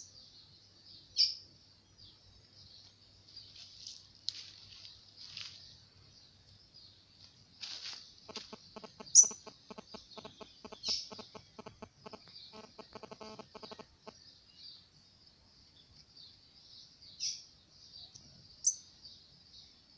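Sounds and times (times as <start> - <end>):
bird twittering song: 0.0 - 19.9
loud sharp bird notes: 8.3 - 14.1
low pulsing bird call: 8.3 - 14.2.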